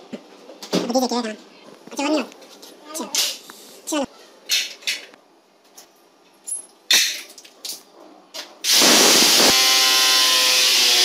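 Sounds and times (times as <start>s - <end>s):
electric drill drilling: 8.7s - 11.0s.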